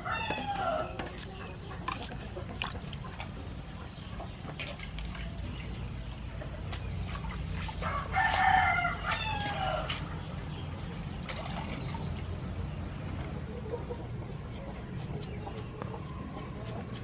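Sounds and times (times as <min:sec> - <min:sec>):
greens washed in water bowl: 0:00.3 - 0:12.7
rooster crowing: 0:07.8 - 0:10.0.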